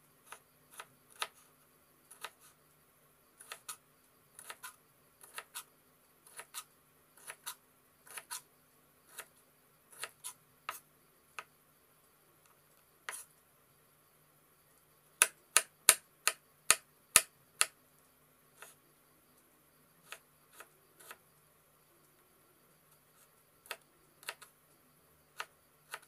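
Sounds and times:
knife chopping on wooden board: 15.2 - 17.7.

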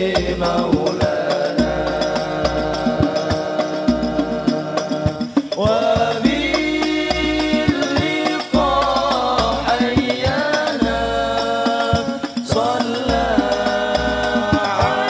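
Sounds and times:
hand frame drums beating: 0.0 - 15.0
men chanting together: 0.0 - 15.0.

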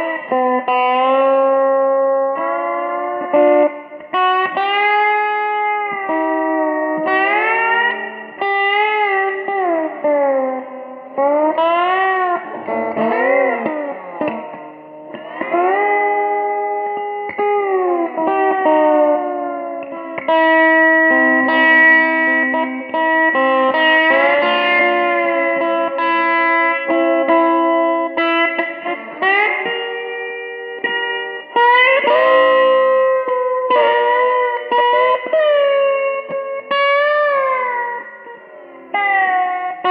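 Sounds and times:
slide electric guitar blues: 0.0 - 39.9.

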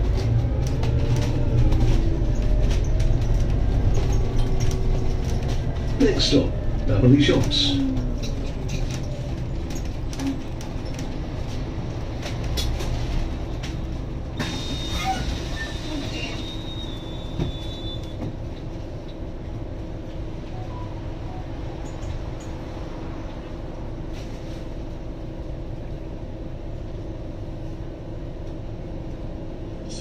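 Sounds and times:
bodywork rattles and clicks: 0.0 - 14.4
bus engine running low revs: 0.0 - 30.0.

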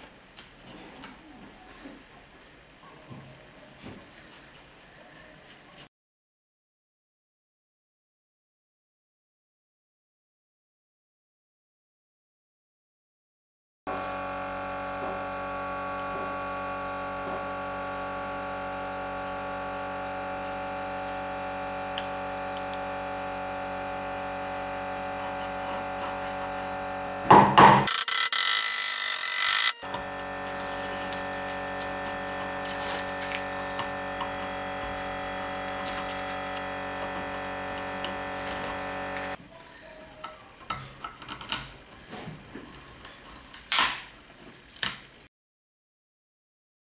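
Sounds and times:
steady machine hum: 13.9 - 39.4.

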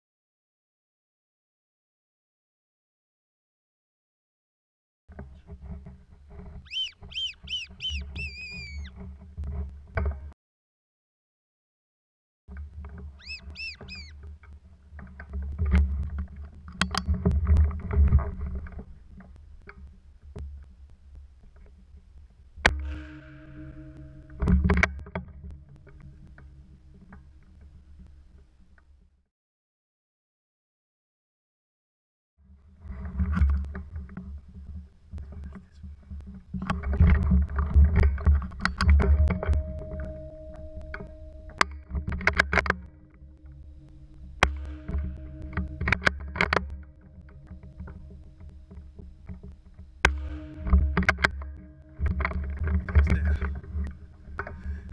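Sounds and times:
rustling and crackling in dry bush: 5.1 - 10.2, 12.5 - 23.4, 32.5 - 54.9
short high arched calls: 6.6 - 9.0, 13.2 - 14.2
sharp clicks and knocks: 12.5 - 23.0, 32.8 - 54.9.

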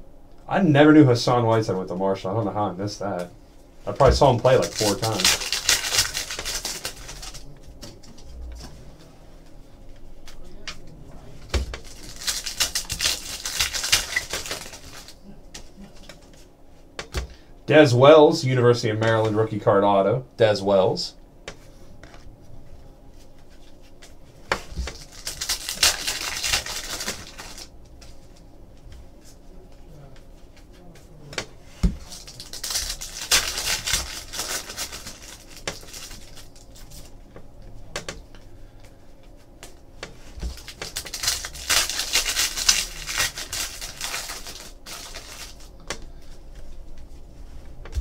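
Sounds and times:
foil wrappers crinkling: 3.9 - 8.3, 11.6 - 15.3, 24.5 - 28.2, 31.9 - 37.1, 40.2 - 46.3
cards shuffling: 4.0 - 8.2, 11.8 - 16.3, 23.6 - 28.2, 31.9 - 37.1, 40.4 - 45.8.

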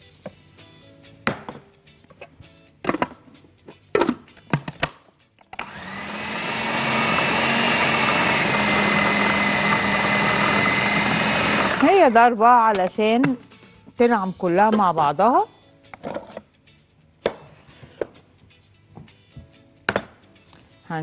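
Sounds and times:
knocks on food processor bowl: 1.2 - 1.6, 19.9 - 20.2
food processor motor grinding: 5.6 - 12.0.

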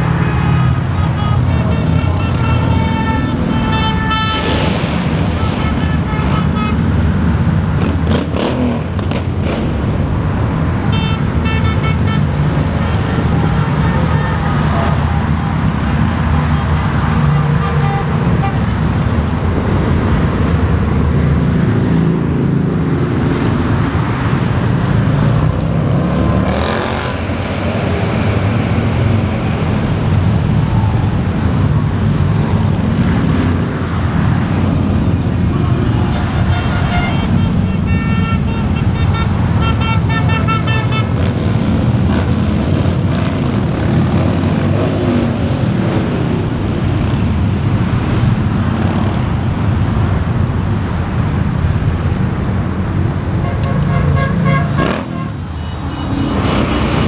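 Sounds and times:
highway traffic rumble: 0.0 - 57.0
vehicle horns: 0.2 - 7.0, 10.9 - 15.2, 17.3 - 18.8, 35.5 - 41.4, 53.4 - 57.0.

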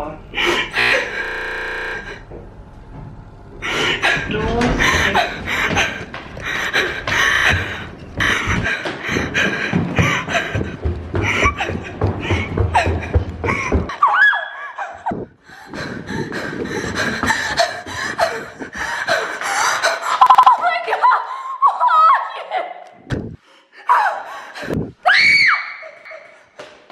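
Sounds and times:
woman panting and gasping: 0.4 - 1.2, 3.6 - 14.0, 14.6 - 20.3, 21.0 - 21.8, 23.3 - 25.1.

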